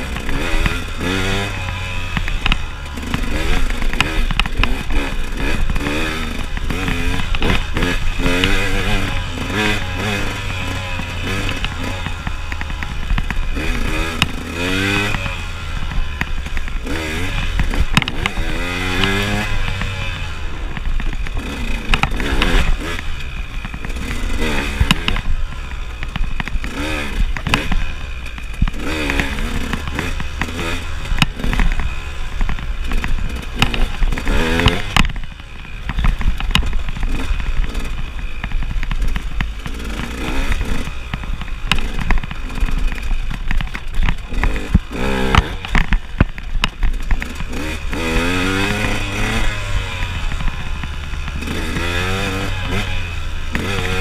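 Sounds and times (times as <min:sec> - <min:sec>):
bike knocking and rattling: 0:00.0 - 0:54.0
motorcycle engine revving: 0:00.0 - 0:54.0.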